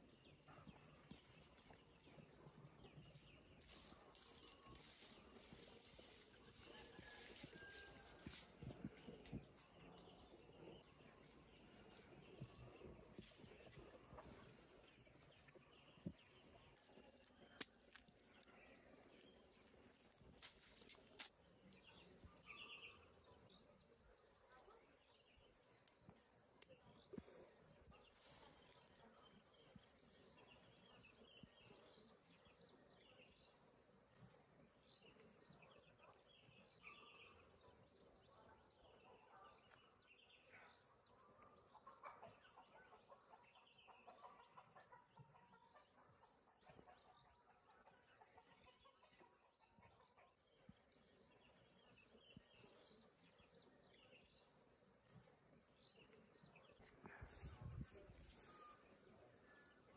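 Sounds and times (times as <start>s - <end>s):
faint bird chirps: 0.0s - 19.8s, 21.8s - 59.9s.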